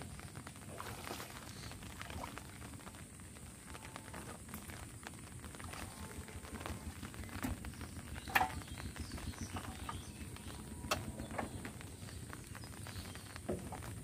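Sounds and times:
low rumble: 0:02.4 - 0:13.3.

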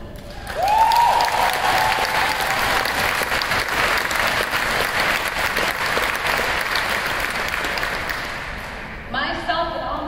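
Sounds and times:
audience applauding: 0:00.2 - 0:08.8
person whooping: 0:00.5 - 0:02.6.

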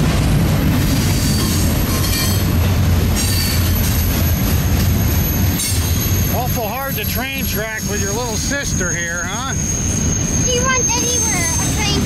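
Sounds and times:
train wheels rumbling on rails: 0:00.0 - 0:12.0
high-pitched wheel squeals: 0:05.0 - 0:12.0.

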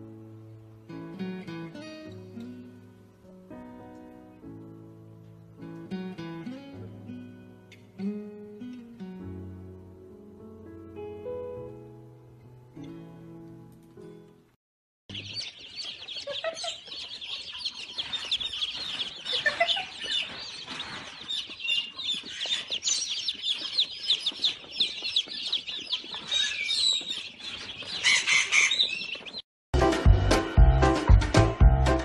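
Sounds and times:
chicks peeping: 0:15.1 - 0:29.4.

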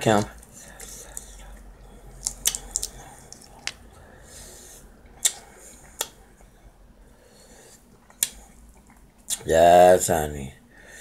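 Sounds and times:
soft breath: 0:00.4 - 0:08.7, 0:10.6 - 0:11.0
shrimp peeling clicks and smacks: 0:02.2 - 0:03.8.

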